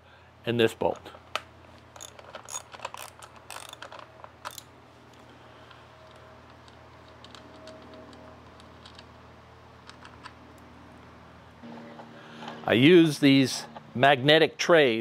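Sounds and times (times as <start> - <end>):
socket ratchet clicking: 1.9 - 4.7.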